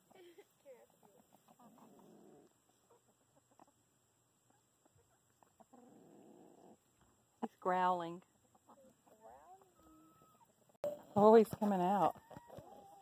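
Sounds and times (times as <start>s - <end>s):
chicken growls: 0.8s - 3.7s, 5.4s - 6.9s, 12.1s - 13.0s.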